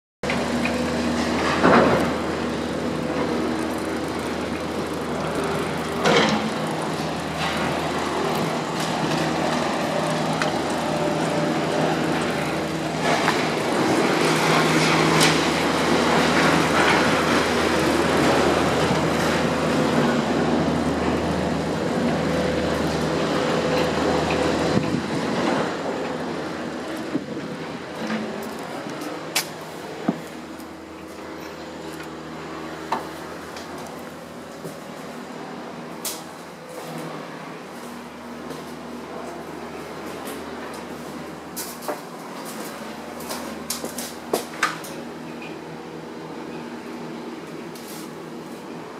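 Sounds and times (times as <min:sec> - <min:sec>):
road noise: 0:00.2 - 0:48.9
vehicle engine idling: 0:00.3 - 0:14.2.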